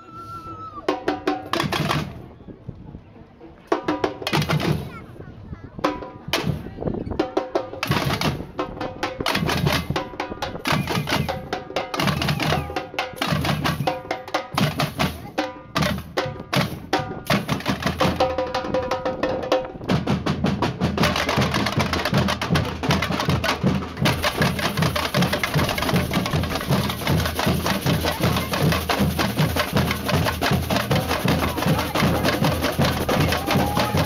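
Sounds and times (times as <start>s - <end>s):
percussion band drumming: 0.8s - 2.2s, 3.7s - 5.0s, 5.8s - 34.0s
low bass drum beat: 19.9s - 34.0s.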